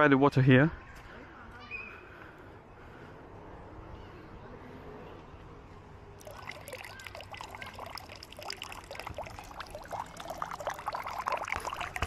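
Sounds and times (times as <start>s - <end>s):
fountain water splashing: 6.2s - 12.0s.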